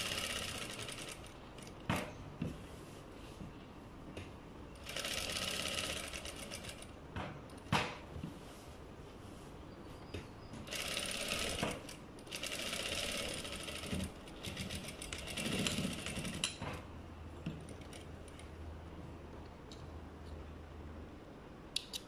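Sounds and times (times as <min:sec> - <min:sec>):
sewing machine stitching: 0:00.0 - 0:01.4, 0:04.8 - 0:06.9, 0:10.6 - 0:16.6.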